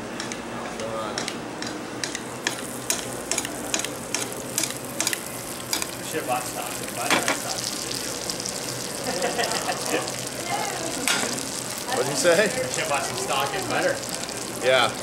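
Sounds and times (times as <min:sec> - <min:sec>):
fish sizzling in butter: 0:02.5 - 0:15.0.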